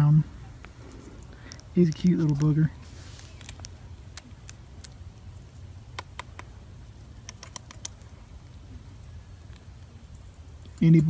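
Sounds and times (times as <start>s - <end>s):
low outdoor rumble: 0.0s - 11.0s
faint small clicks and ticks: 0.6s - 2.5s, 6.0s - 6.5s, 7.2s - 8.1s.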